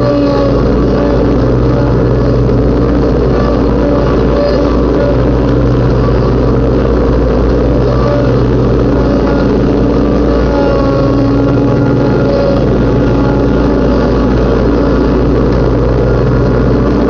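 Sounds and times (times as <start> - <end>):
riding lawnmower engine running: 0.0 - 17.0.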